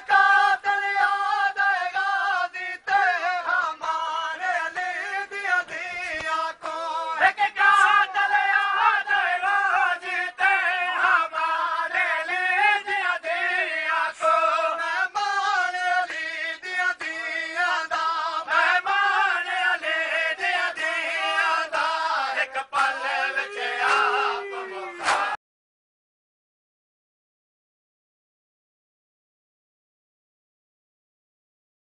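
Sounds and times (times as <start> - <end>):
men chanting in unison: 0.0 - 25.4.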